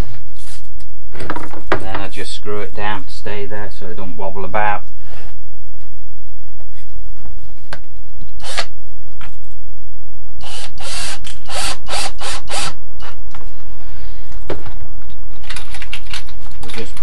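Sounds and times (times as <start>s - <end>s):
cordless drill bursts: 8.4s - 8.7s, 10.4s - 13.1s
handling knocks and clicks: 14.4s - 17.0s.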